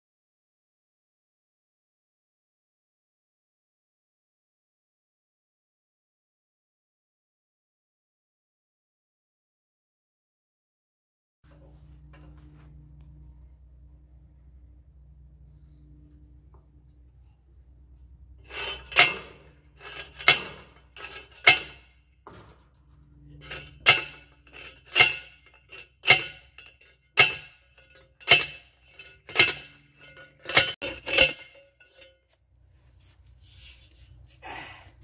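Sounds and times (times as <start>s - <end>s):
metal post driver clanking: 18.4s - 22.6s, 23.3s - 32.2s.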